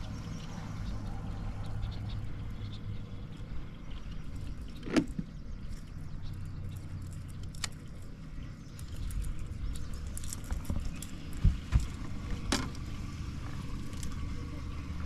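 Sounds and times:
low rumble: 0:00.0 - 0:15.0
gear knocking and clicking: 0:04.4 - 0:14.3.

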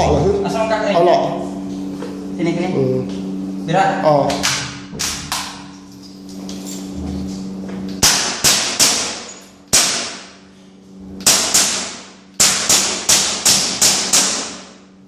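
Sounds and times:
airsoft gun shots echoing: 0:08.0 - 0:10.4, 0:11.2 - 0:14.8.

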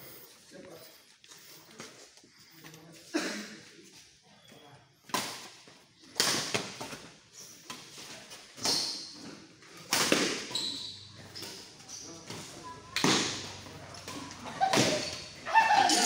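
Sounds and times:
rackets hitting shuttlecock: 0:09.9 - 0:16.0.

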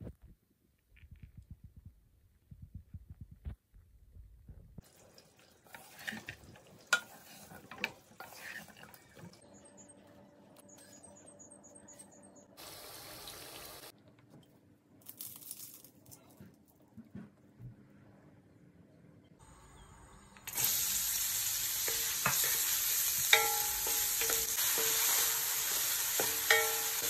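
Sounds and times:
steady hiss: 0:19.4 - 0:27.0.

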